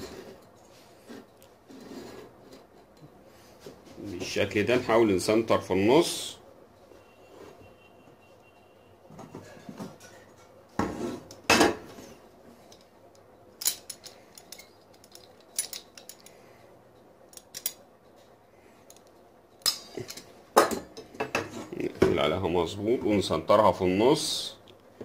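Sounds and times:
metal tools clinking on table: 13.6s - 16.3s, 17.3s - 17.8s.

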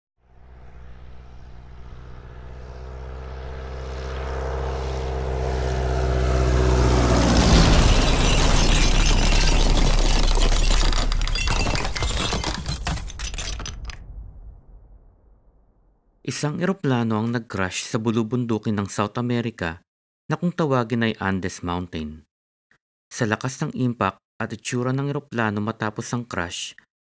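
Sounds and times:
jet airliner flying overhead: 0.4s - 8.9s.

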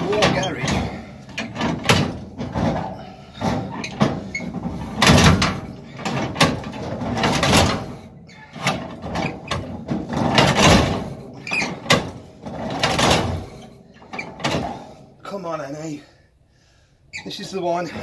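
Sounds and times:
engine cranked by hand: 0.0s - 14.9s.

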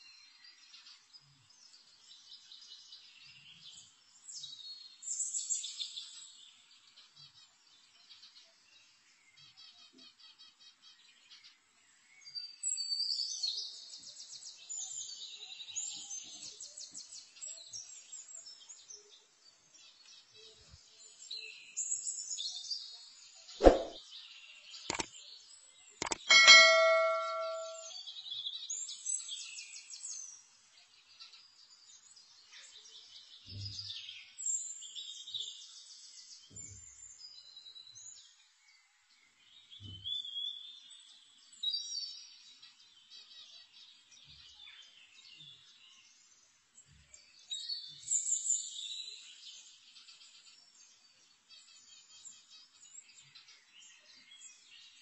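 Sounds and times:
small birds chirping: 0.0s - 55.0s
spatula clanging steel pan: 26.1s - 27.9s.

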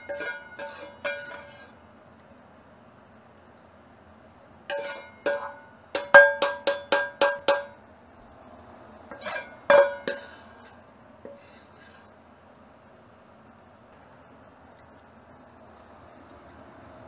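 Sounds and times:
metal ladle scraping a wok: 0.0s - 1.8s, 4.7s - 7.6s, 9.1s - 12.2s.

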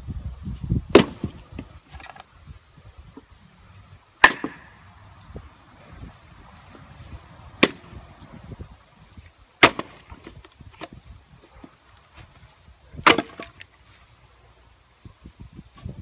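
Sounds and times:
axe striking wood: 0.9s - 1.4s, 4.2s - 4.8s, 7.6s - 8.0s, 9.6s - 10.9s, 13.0s - 13.6s.

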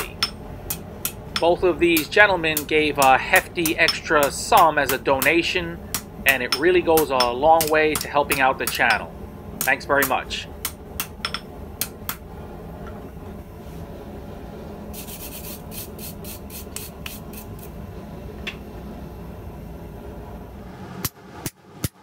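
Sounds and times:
brush scratching steel bar: 15.0s - 17.7s.

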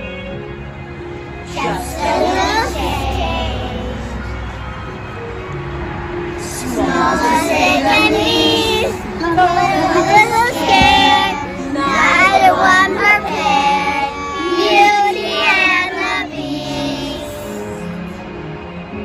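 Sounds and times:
children singing together: 1.4s - 4.4s, 6.4s - 18.0s.

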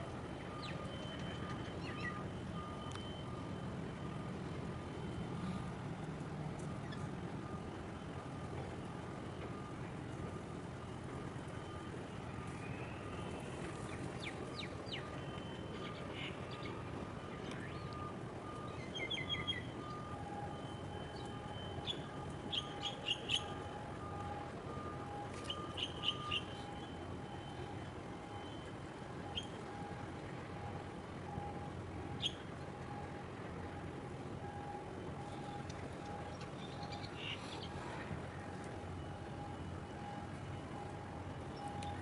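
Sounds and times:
low rumble of harbour noise: 0.0s - 42.0s
birds chirping: 21.2s - 23.6s, 25.5s - 26.6s, 36.2s - 37.9s.

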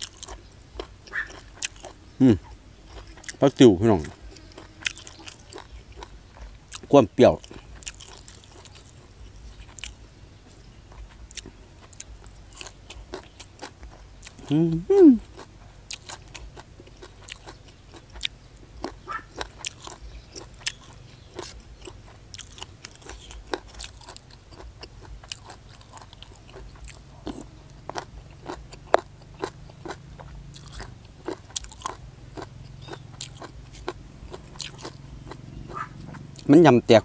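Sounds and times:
crisp chewing crunches: 0.0s - 14.6s, 15.2s - 36.6s.

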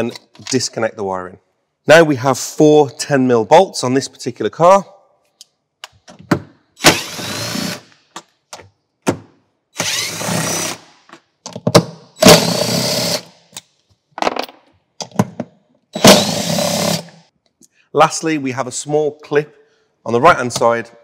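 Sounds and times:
cordless drill whining: 6.8s - 7.8s, 9.8s - 10.9s, 12.2s - 13.3s, 16.0s - 17.2s.

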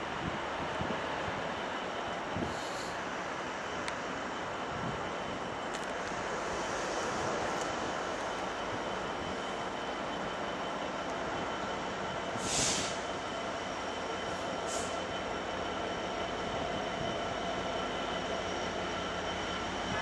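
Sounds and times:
diesel locomotive engine: 0.0s - 20.0s
short hiss: 12.4s - 13.0s.

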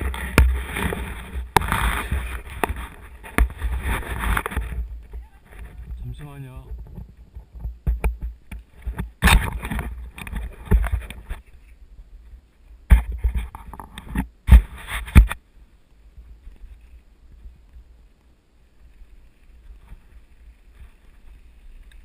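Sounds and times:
camera handling bumps and rustles: 0.0s - 6.0s, 6.7s - 11.4s.

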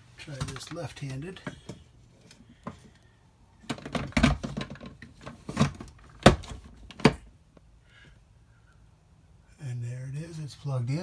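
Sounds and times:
plastic knocks and clatter: 3.6s - 7.3s.

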